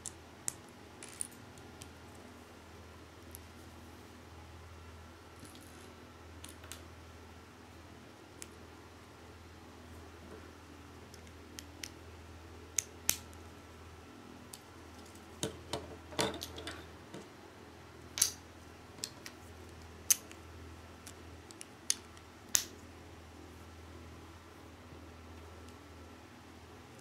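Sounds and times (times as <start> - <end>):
plastic bricks clicking together: 18.2 - 18.4.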